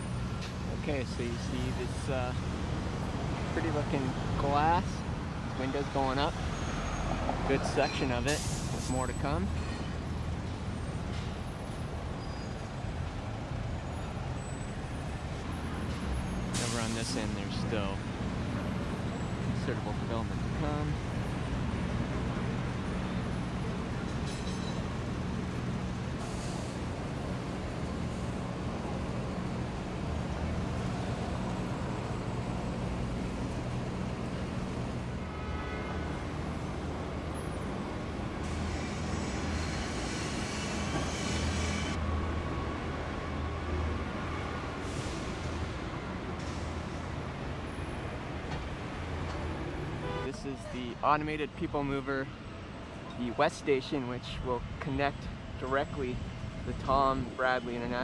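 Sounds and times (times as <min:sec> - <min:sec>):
road traffic rumble: 0:00.0 - 0:58.0.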